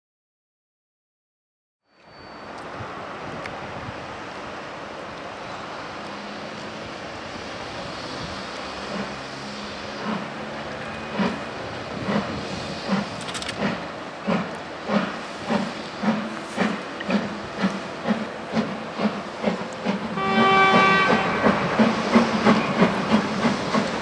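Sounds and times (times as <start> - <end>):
steam hissing: 5.4 - 24.0
steam locomotive exhaust chuffs: 7.6 - 24.0.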